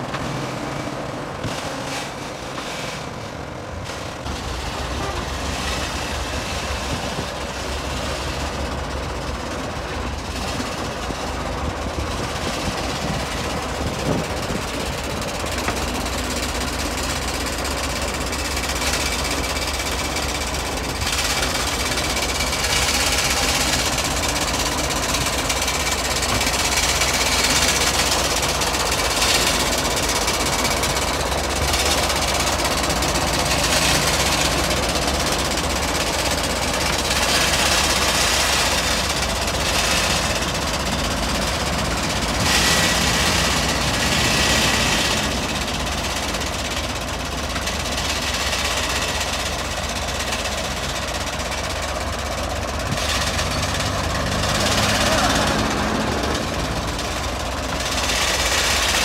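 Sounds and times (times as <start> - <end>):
tractor diesel engine clattering: 0.0 - 59.0.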